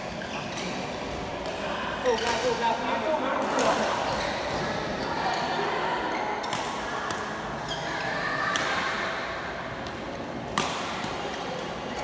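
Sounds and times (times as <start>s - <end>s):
rackets hitting shuttlecock: 9.8s - 11.8s.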